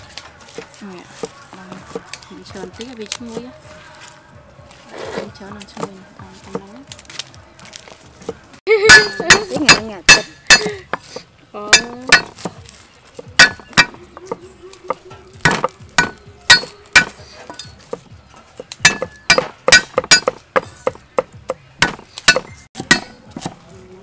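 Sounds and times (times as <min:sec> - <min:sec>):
cleaver striking chopping block: 0:08.9 - 0:12.6, 0:13.2 - 0:23.6.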